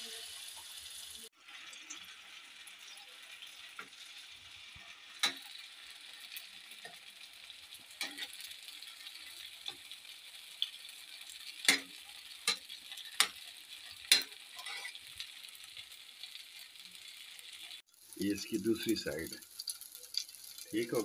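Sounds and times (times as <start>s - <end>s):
batter sizzling in oil: 0.0s - 21.0s
spatula scraping a pan: 7.8s - 9.9s, 10.6s - 15.0s.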